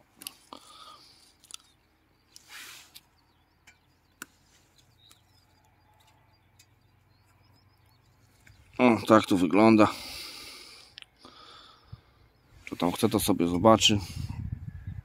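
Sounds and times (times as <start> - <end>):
soft rustles: 2.3 - 3.1.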